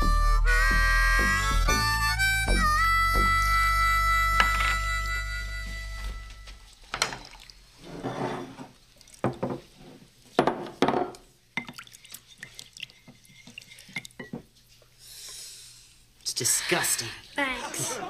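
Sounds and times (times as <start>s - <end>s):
liquid pouring into glass bowl: 6.8s - 7.7s, 11.5s - 14.4s
wooden spoon stirring and tapping glass: 11.6s - 14.5s.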